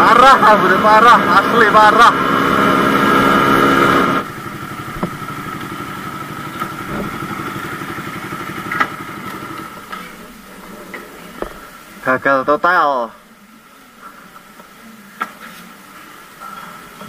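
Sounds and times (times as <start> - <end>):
motorcycle engine idling: 2.2 - 10.5.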